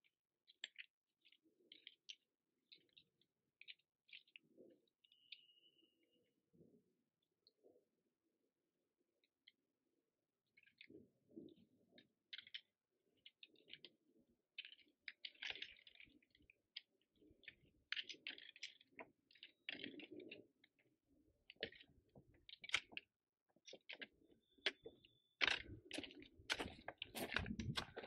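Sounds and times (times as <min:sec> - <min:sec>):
trekking poles clicking on stone: 0:12.4 - 0:20.8, 0:21.4 - 0:28.0
footsteps crunching on loose rock: 0:25.4 - 0:28.0.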